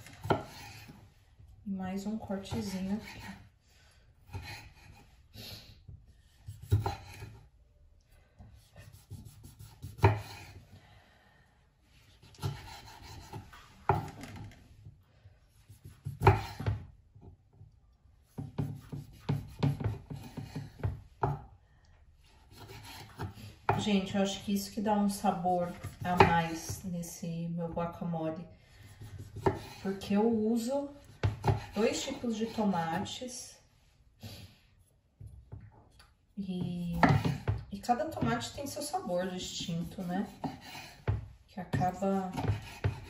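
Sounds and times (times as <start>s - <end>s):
knife scraping board: 0.0s - 1.0s, 6.4s - 7.4s, 12.2s - 14.4s, 22.4s - 24.4s, 28.9s - 30.2s, 38.2s - 41.1s, 41.8s - 43.0s.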